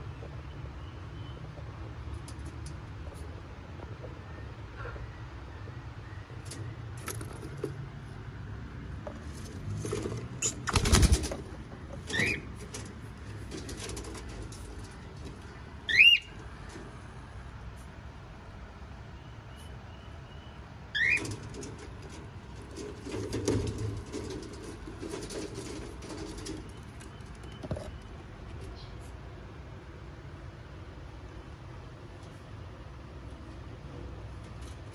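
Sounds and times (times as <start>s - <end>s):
cockatiels calling: 12.1s - 12.5s, 15.9s - 16.4s, 20.9s - 21.4s
rustling: 21.1s - 29.2s.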